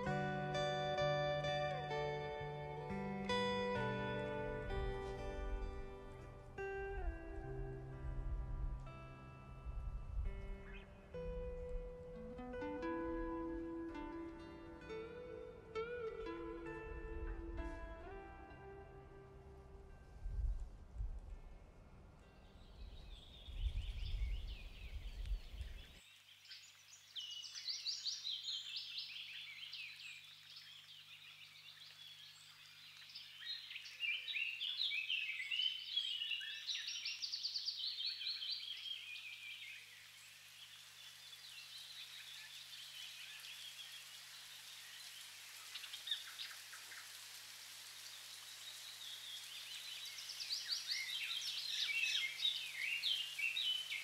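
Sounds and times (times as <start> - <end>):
low rumble: 4.8 - 11.9
songbirds chirping and trilling: 21.3 - 54.0.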